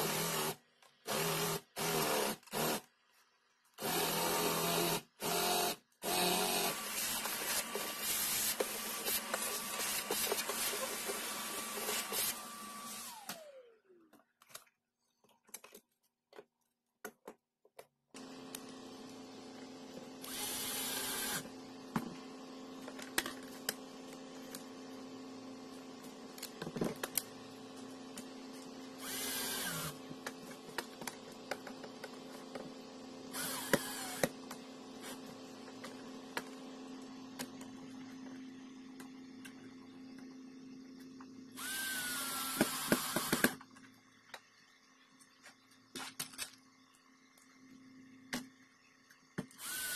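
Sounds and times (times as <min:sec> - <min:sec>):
cordless drill driving screws: 0:03.8 - 0:13.6, 0:20.2 - 0:21.5, 0:29.0 - 0:30.0, 0:33.3 - 0:34.3, 0:41.6 - 0:43.6, 0:49.6 - 0:49.9.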